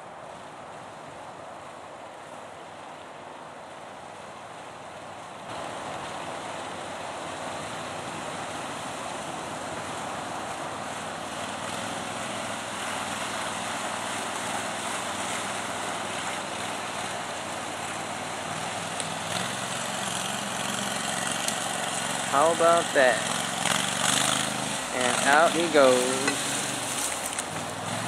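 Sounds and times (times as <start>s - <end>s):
vehicle driving through water and mud: 3.7s - 28.0s
small engine running: 19.1s - 28.0s.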